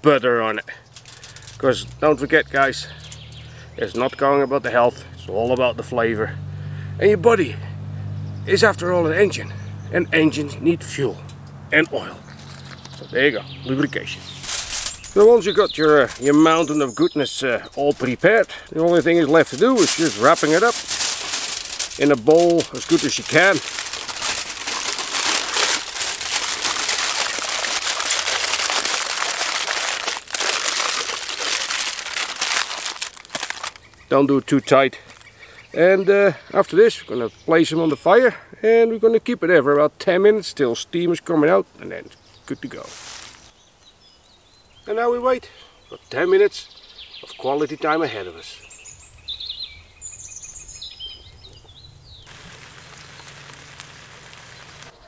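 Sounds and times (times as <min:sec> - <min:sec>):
birds chirping: 0:00.0 - 0:55.0
aluminium foil crinkling: 0:00.7 - 0:01.8, 0:14.3 - 0:34.0, 0:42.8 - 0:43.5, 0:52.2 - 0:55.0
food sizzling on charcoal grill: 0:00.8 - 0:01.6, 0:14.3 - 0:16.9, 0:17.6 - 0:33.8, 0:52.2 - 0:54.9.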